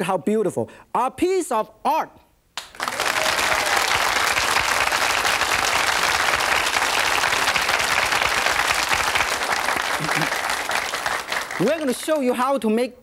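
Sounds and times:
audience applauding: 0:02.6 - 0:12.3.

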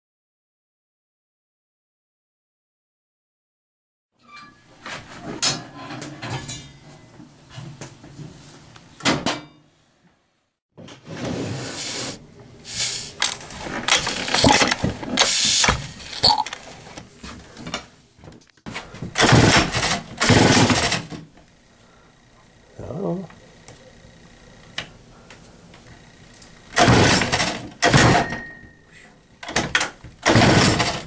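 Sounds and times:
chainsaw pull-starting: 0:12.7 - 0:16.6, 0:19.2 - 0:21.1, 0:26.7 - 0:28.0, 0:30.2 - 0:31.0.

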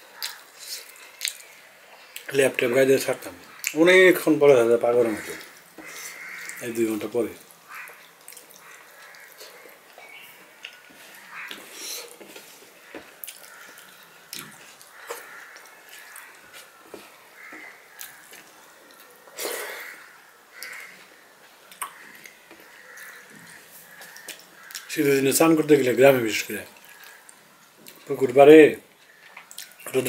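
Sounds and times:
person chewing with wet smacking: 0:00.2 - 0:02.3, 0:07.5 - 0:19.5, 0:21.7 - 0:24.9, 0:26.7 - 0:28.1, 0:29.0 - 0:30.0
breathing through the nose: 0:11.7 - 0:12.2.

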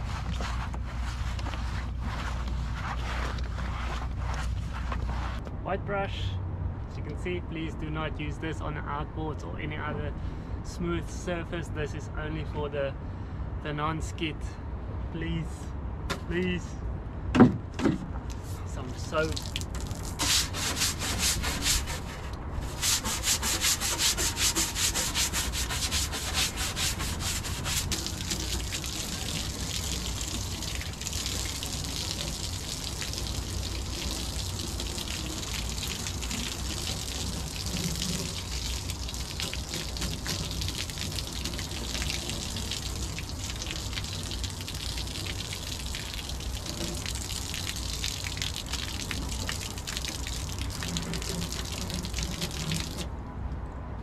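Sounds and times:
deck brush scrubbing: 0:00.0 - 0:05.4, 0:18.4 - 0:53.0
hose water splashing on deck: 0:00.0 - 0:05.4, 0:18.3 - 0:53.1.

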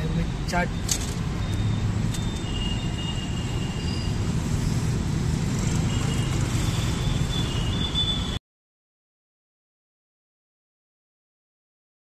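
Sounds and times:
road traffic rumble: 0:00.0 - 0:08.4.

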